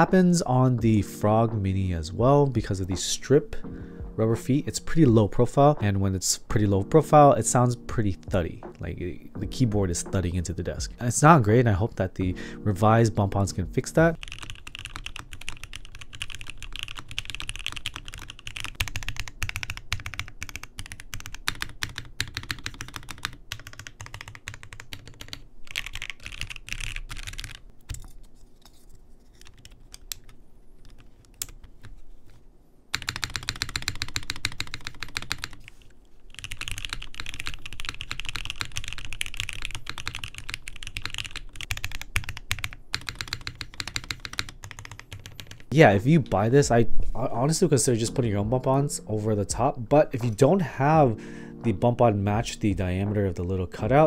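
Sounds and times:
mechanical keyboard typing: 14.1s - 28.0s, 32.9s - 45.7s.

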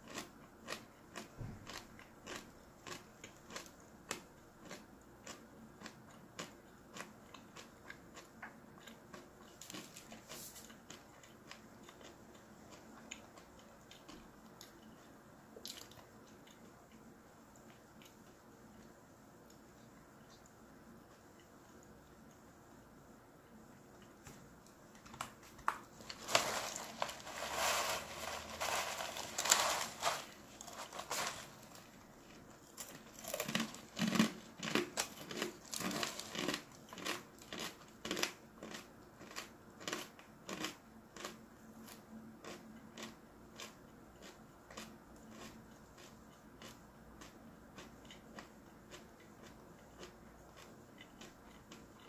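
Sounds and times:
crunching chews: 0.0s - 17.0s, 25.1s - 52.0s
snack bag crinkling: 25.0s - 38.3s.

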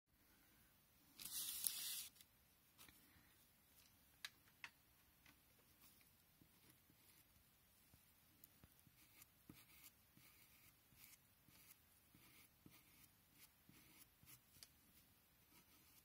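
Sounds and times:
pencil scratching on paper: 5.8s - 7.4s, 8.7s - 14.7s, 15.4s - 16.0s.

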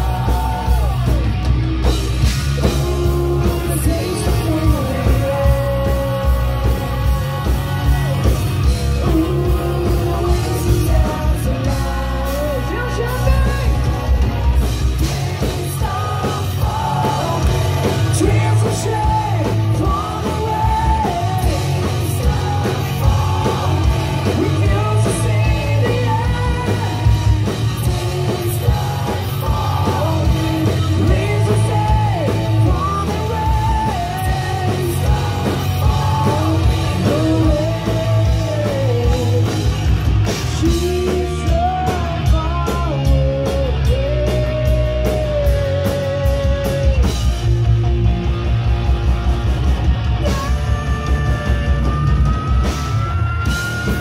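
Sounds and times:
bass: 0.0s - 54.0s
distorted electric guitars: 0.0s - 54.0s
drums: 0.0s - 54.0s
person singing: 2.4s - 14.0s, 14.9s - 39.8s, 40.4s - 47.1s.

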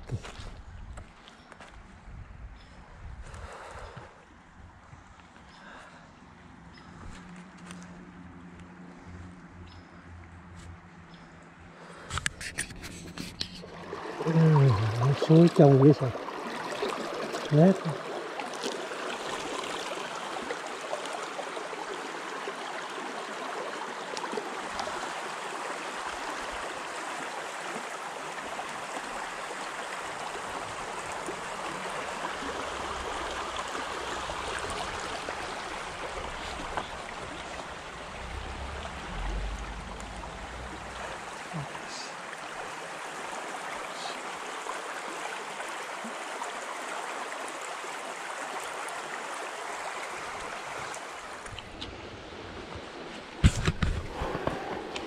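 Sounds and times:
stream flowing over rocks: 12.8s - 55.0s
low rumble: 34.1s - 41.9s.

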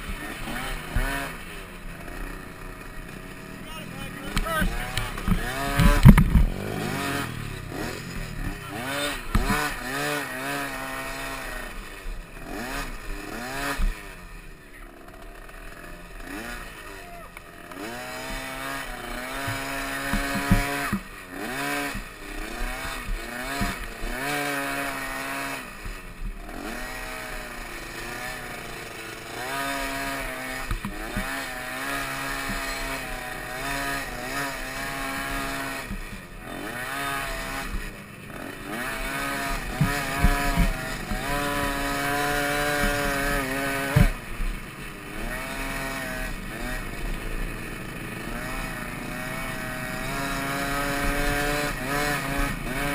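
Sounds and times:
dirt bike engine revving: 0.0s - 52.9s
sharp knocks: 43.9s - 44.2s.

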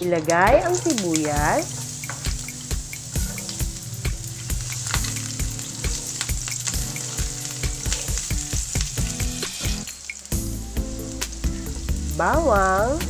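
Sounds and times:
onion sizzling in oil: 0.0s - 13.0s
stirring ticks and knocks: 0.7s - 10.3s.

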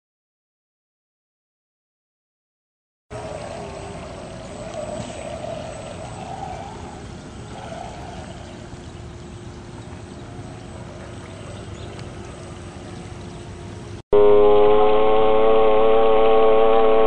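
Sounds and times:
water splashing and lapping: 3.1s - 14.0s
loud multi-tone whine: 3.1s - 17.0s.

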